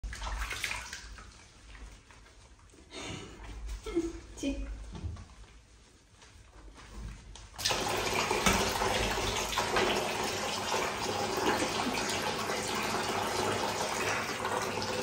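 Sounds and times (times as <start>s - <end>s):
tap water pouring into tub: 0.0s - 2.3s, 7.6s - 15.0s.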